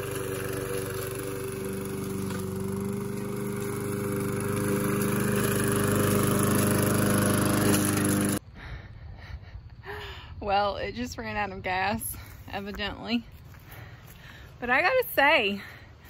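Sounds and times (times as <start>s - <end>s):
lawn mower engine cutting weeds: 0.0s - 8.4s.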